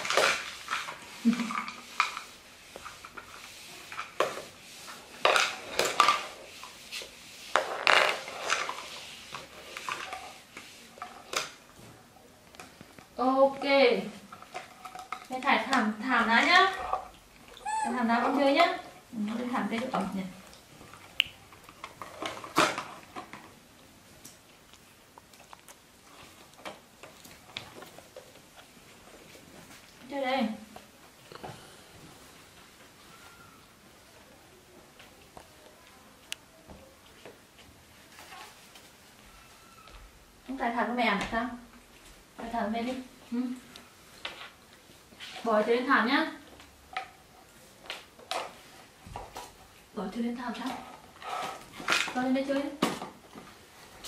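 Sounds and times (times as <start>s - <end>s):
plastic containers clattering on wood floor: 5.2s - 6.4s, 7.5s - 10.2s, 21.6s - 23.6s, 50.6s - 53.6s.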